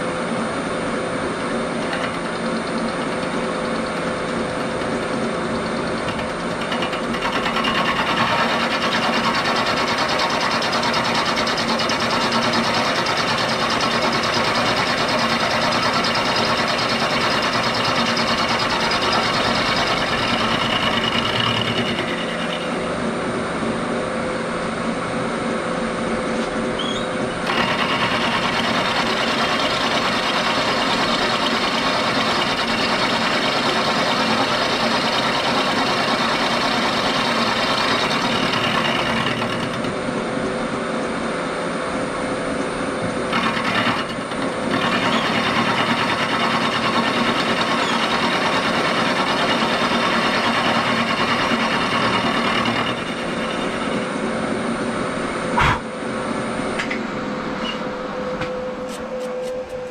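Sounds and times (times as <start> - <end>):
milling machine spindle running: 1.3 - 23.7, 26.6 - 40.4, 43.0 - 55.8
end mill cutting metal: 1.4 - 23.1, 27.2 - 40.2, 43.3 - 54.6.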